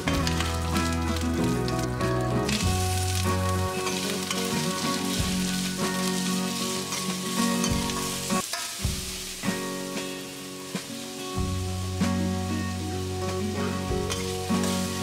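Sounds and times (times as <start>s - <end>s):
spatula scraping and knocking pan: 0.0s - 9.6s
onions sizzling in oil: 0.0s - 15.0s.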